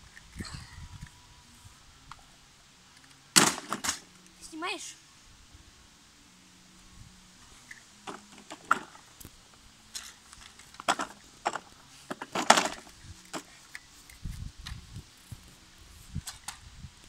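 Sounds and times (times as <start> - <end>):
toy car wheels clicking and knocking: 9.9 - 14.8.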